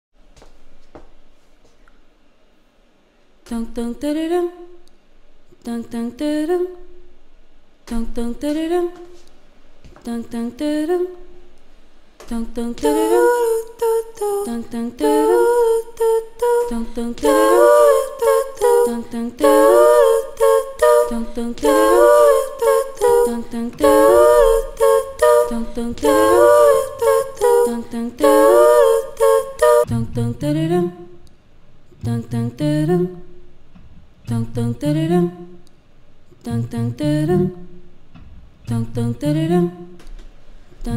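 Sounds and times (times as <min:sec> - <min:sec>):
sustained vocal harmony: 0:12.3 - 0:31.1
woman singing looped phrase: 0:12.3 - 0:31.1.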